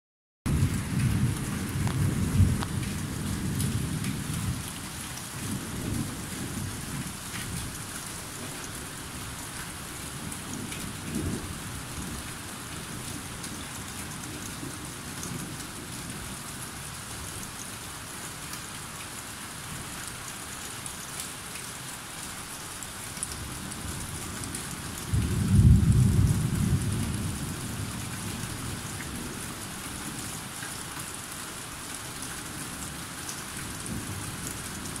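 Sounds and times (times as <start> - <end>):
rolling thunder: 0.5 - 4.7, 25.1 - 28.0.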